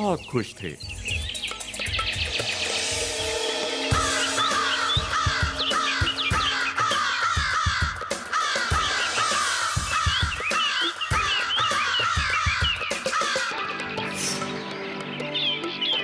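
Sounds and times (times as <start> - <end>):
background music: 0.0 - 16.0
crows cawing: 3.6 - 14.0.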